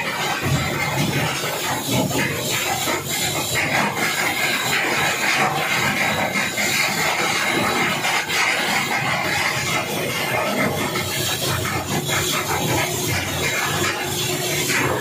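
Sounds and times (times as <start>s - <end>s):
loud industrial hissing: 0.0s - 15.0s.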